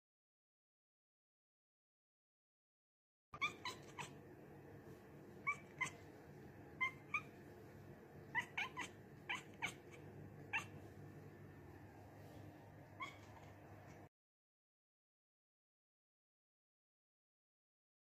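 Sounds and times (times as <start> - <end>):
cat chirping: 3.4 - 4.2, 5.4 - 7.5, 8.2 - 10.9, 12.8 - 14.1.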